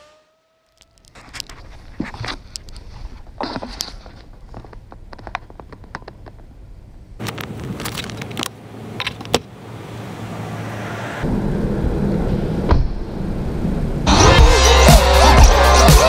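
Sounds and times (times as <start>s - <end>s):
clicks and rattles of handling: 7.2s - 9.4s.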